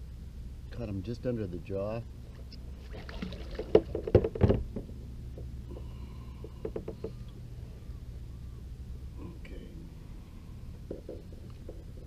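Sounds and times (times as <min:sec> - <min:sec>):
steady low rumble: 0:00.0 - 0:03.5, 0:07.2 - 0:12.0
knocking and clattering on kayak: 0:03.6 - 0:05.5, 0:06.5 - 0:07.2.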